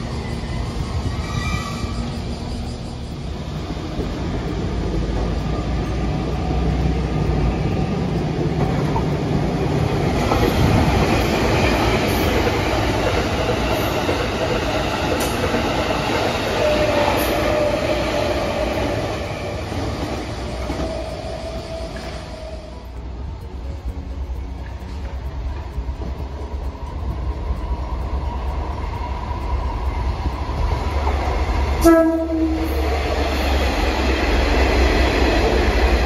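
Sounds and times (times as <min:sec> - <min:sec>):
train rumbling on rails: 0:00.0 - 0:36.0
train wheel squeal: 0:00.0 - 0:36.0.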